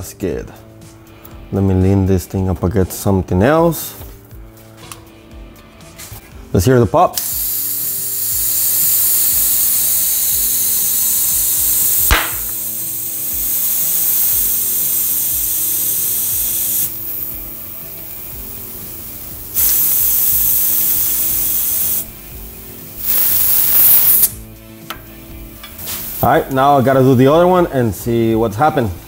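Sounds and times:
compressed air hissing: 7.2s - 27.5s
tire bead popping: 8.5s - 12.7s.

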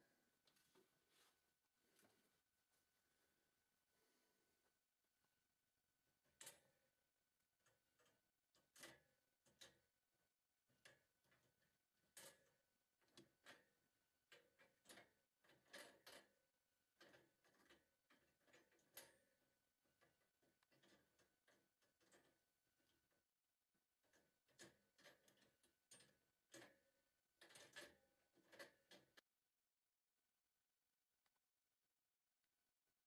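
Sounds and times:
faint clicks and rattles: 6.2s - 29.3s.

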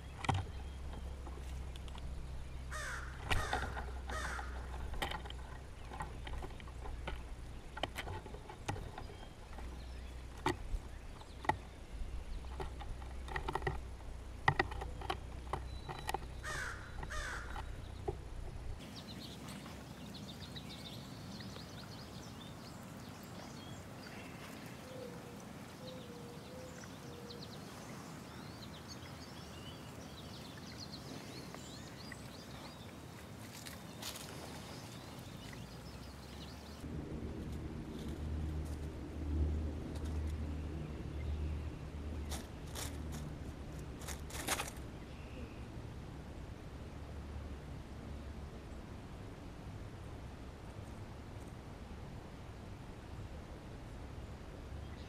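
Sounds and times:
beaks tapping on wood: 0.0s - 2.1s, 2.7s - 11.7s, 12.4s - 18.2s
faint distant birdsong: 0.0s - 55.0s
crow cawing: 2.7s - 4.7s, 16.4s - 17.6s.

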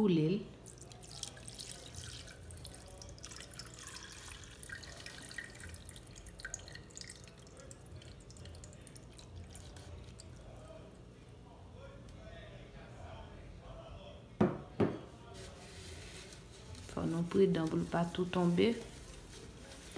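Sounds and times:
liquid trickling and dripping: 0.6s - 11.1s.

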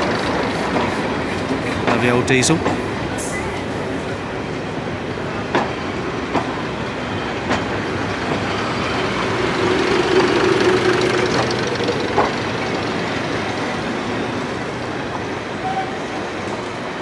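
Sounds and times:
train wheels clicking over rail joints: 0.0s - 3.8s, 5.4s - 14.0s
diesel train engines running: 0.0s - 17.0s.

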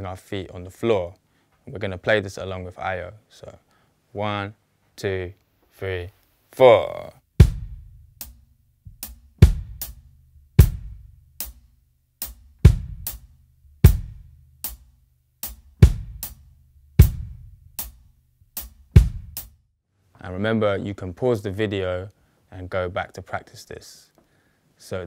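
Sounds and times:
lighter sharp drum hits: 7.4s - 10.0s, 10.6s - 11.6s, 15.5s - 16.4s, 17.0s - 18.0s, 18.6s - 19.5s
kick drum pattern: 7.4s - 19.6s.

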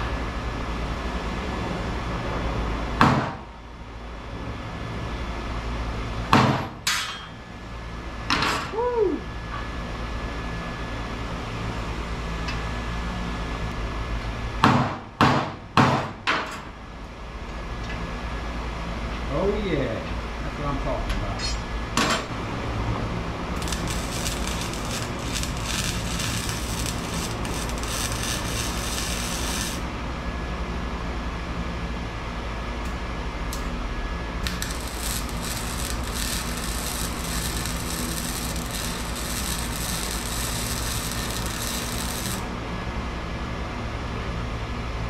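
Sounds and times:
steady low hum: 21.6s - 44.8s
welder arc crackling: 23.6s - 29.9s, 34.4s - 42.5s.

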